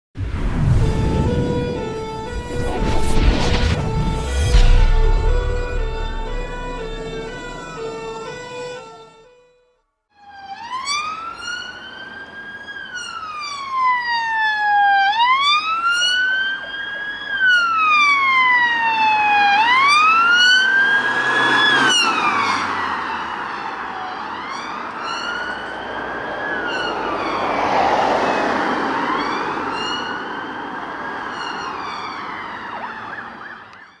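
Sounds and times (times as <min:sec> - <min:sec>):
car passing: 0:00.2 - 0:09.4, 0:17.6 - 0:33.6
police siren wailing: 0:00.5 - 0:09.3, 0:10.2 - 0:34.0.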